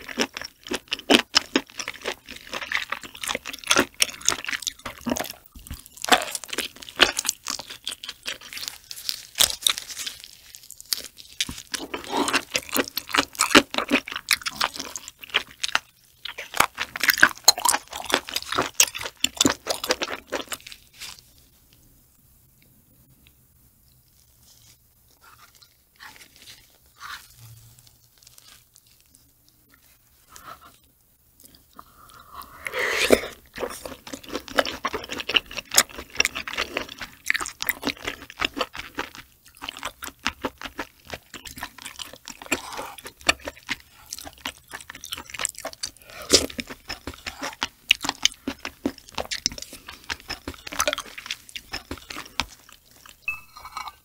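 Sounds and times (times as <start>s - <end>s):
wet chewing with clicks: 33.5s - 53.4s.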